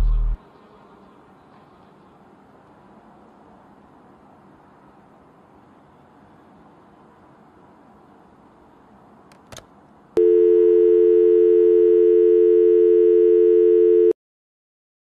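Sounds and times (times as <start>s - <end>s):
telephone dial tone: 10.2s - 14.2s.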